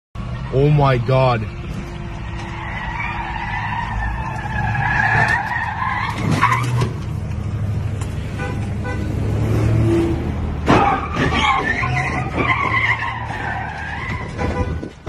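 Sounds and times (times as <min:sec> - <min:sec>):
vehicle engine rumble: 0:00.2 - 0:15.0
tyres squealing: 0:01.1 - 0:07.1, 0:10.6 - 0:15.0.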